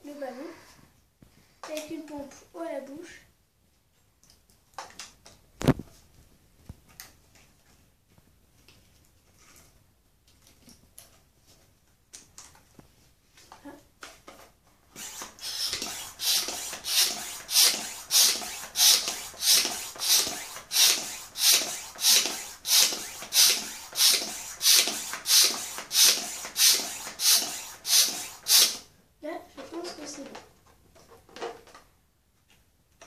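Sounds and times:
hand pump hissing air: 0:14.9 - 0:28.9.

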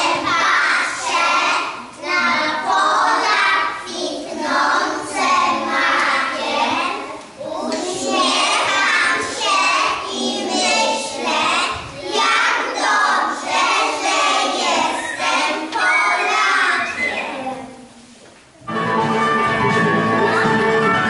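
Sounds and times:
young children singing: 0:00.0 - 0:18.0
instrumental music: 0:18.6 - 0:21.0.

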